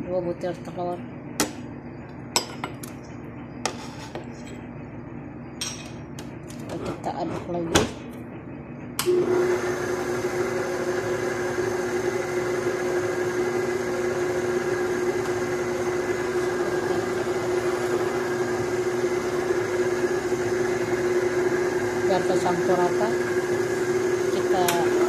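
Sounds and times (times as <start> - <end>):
stand mixer motor hum: 9.0 - 25.0.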